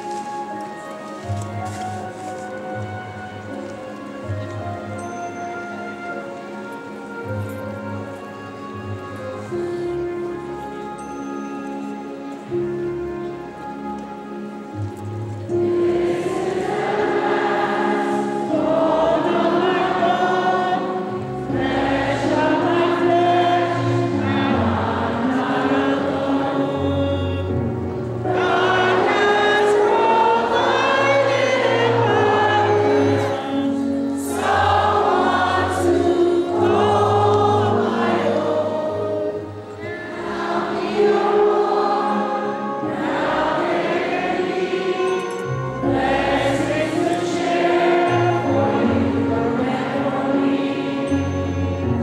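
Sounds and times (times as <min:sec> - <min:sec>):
instrumental accompaniment: 0:00.0 - 0:52.0
congregation singing a hymn: 0:14.7 - 0:52.0.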